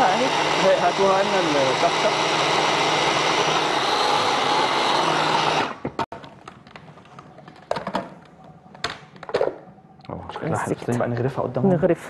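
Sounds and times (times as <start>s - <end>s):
food processor running: 0.0s - 6.0s.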